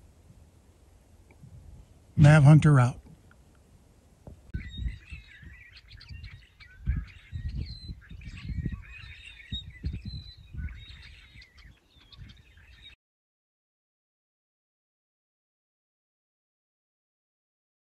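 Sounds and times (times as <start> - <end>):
small birds chirping: 3.0 - 13.0.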